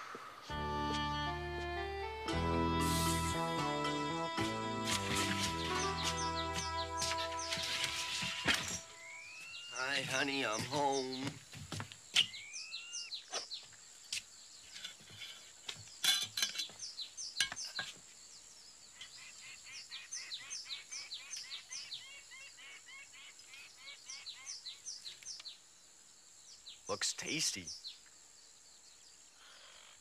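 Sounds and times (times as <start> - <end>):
bird chirps sweeping downward: 8.8 - 10.0.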